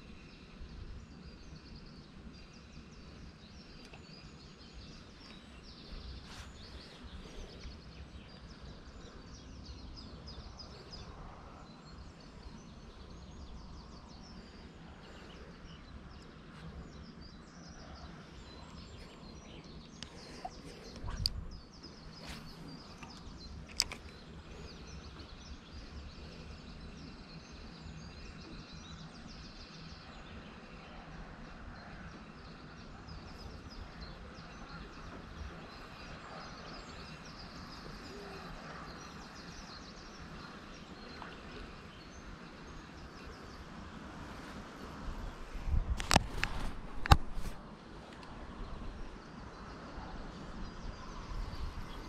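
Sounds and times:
small birds chirping: 0:00.0 - 0:52.0
steady low rumble: 0:00.0 - 0:52.0
sharp clicks: 0:23.0 - 0:24.2, 0:46.0 - 0:48.3.

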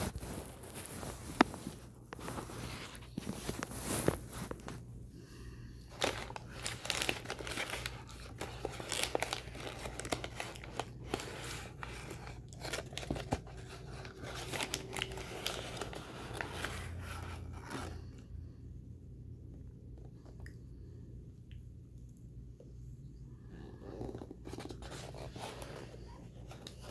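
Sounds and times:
paper bag crinkling and tearing: 0:00.0 - 0:04.8, 0:05.9 - 0:18.1.

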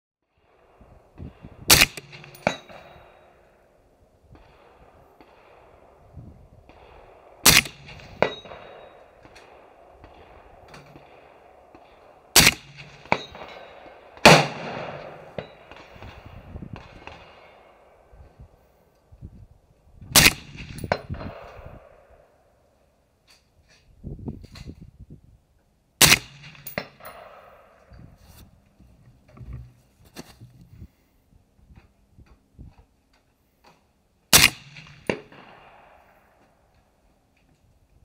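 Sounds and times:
suppressed rifle shots: 0:01.7 - 0:03.2, 0:06.6 - 0:17.6, 0:20.2 - 0:21.6, 0:26.0 - 0:27.8, 0:34.3 - 0:36.1
bullet clanging on steel target: 0:02.0 - 0:03.3, 0:07.6 - 0:09.4, 0:12.6 - 0:13.9, 0:26.2 - 0:27.3.

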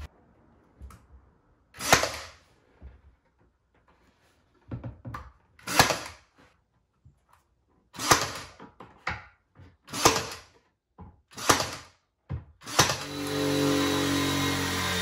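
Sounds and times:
cordless nailer shots: 0:01.8 - 0:02.4, 0:05.6 - 0:06.2, 0:08.0 - 0:08.6, 0:09.9 - 0:10.5, 0:11.3 - 0:12.0, 0:12.6 - 0:15.0.

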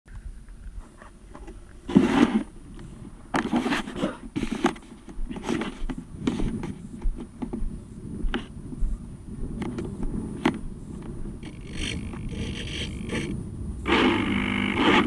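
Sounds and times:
scraping and rustling handling noise: 0:00.6 - 0:07.5.

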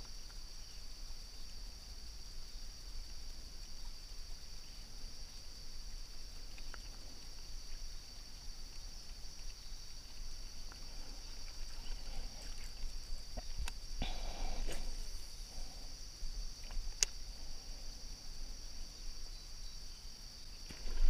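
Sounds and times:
insects chirring: 0:00.0 - 0:21.0
faint sharp clicks: 0:06.4 - 0:07.8, 0:13.3 - 0:13.8, 0:16.6 - 0:17.2.

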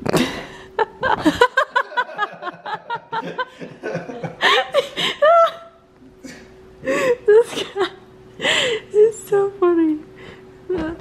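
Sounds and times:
people laughing: 0:00.3 - 0:05.7.

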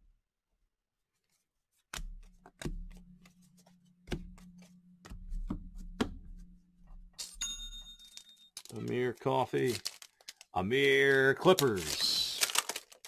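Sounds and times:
trading cards tapping and clicking: 0:01.8 - 0:06.3.

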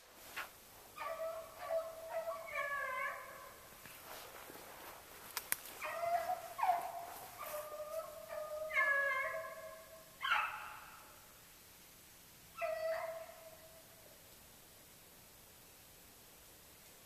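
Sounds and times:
sharp clicks: 0:05.3 - 0:05.7.

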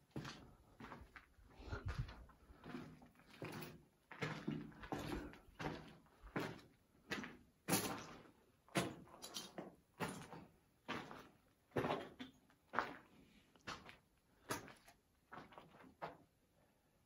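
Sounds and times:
footsteps on gritty concrete: 0:00.1 - 0:09.1.

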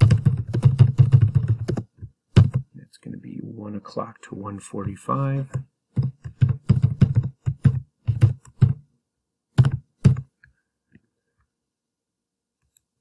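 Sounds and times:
computer keyboard typing: 0:00.0 - 0:02.6, 0:05.2 - 0:08.8, 0:09.6 - 0:10.3.

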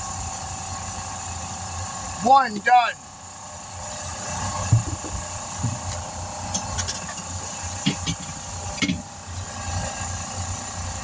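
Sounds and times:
vehicle engine idling: 0:01.4 - 0:11.0
wheel knocking on pavement: 0:04.6 - 0:06.0.

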